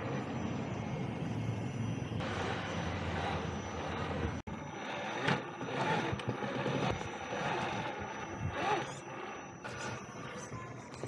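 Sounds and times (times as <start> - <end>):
rc truck motor and gears: 0.0 - 11.0
irregular clicks and scrapes: 4.0 - 11.0.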